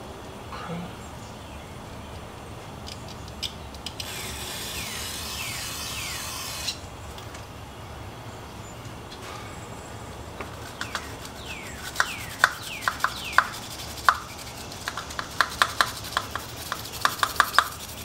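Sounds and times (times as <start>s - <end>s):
aerosol can spraying hiss: 11.8s - 18.0s.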